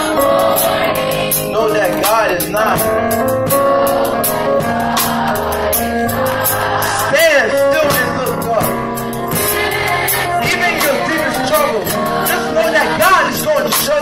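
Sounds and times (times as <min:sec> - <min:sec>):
band holding low notes: 0:00.0 - 0:14.0
drums with cymbal strokes: 0:07.6 - 0:14.0.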